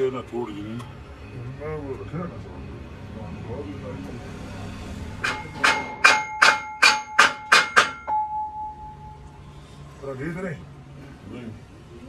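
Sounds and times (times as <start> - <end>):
hammer striking steel: 5.2 - 8.6.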